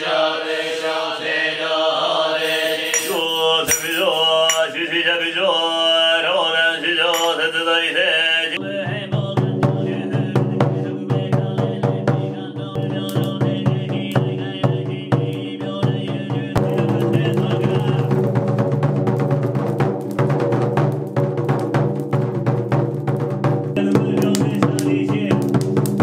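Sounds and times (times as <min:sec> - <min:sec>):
monks chanting in unison: 0:00.0 - 0:18.3
drum beating rapidly: 0:08.6 - 0:26.0.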